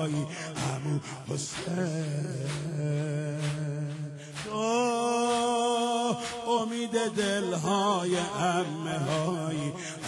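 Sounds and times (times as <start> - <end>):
men chanting a lament: 0.0 - 10.0
rhythmic chest-beating: 0.0 - 10.0.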